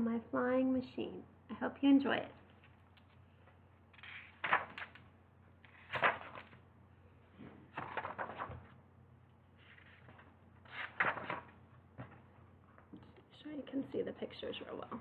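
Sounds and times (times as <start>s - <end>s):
book pages rustling: 2.4s - 6.6s, 7.4s - 8.8s, 9.5s - 12.2s.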